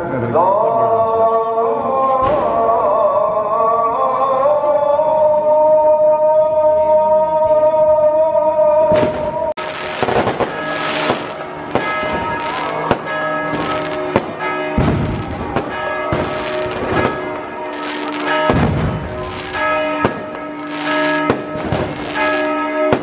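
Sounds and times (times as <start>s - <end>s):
firecrackers banging: 8.9s - 23.0s
church bells ringing: 9.6s - 23.0s.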